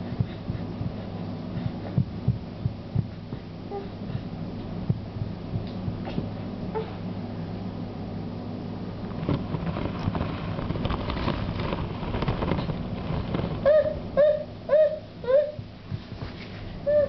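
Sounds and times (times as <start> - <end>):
steady low hum: 0.0 - 17.0
high whimpering calls: 13.6 - 15.6.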